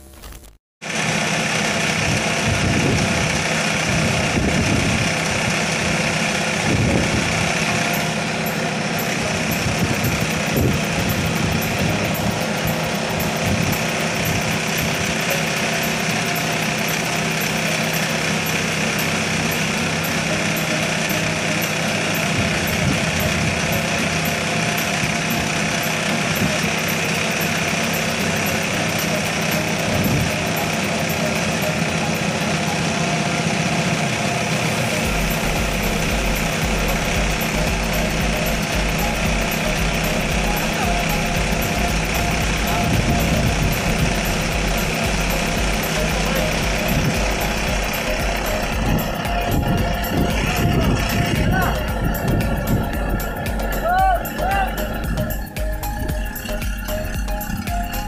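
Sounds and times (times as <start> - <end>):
pile-driving rig engine running: 0.8 - 58.0.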